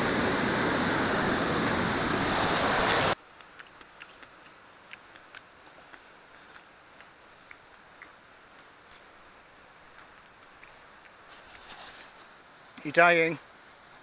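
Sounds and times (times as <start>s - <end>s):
faint small ticks: 3.3s - 9.2s, 9.9s - 11.8s.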